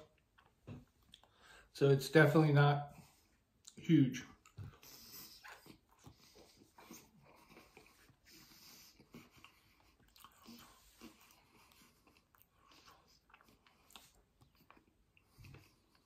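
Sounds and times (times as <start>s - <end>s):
person chewing: 0.0s - 1.4s, 8.9s - 16.0s.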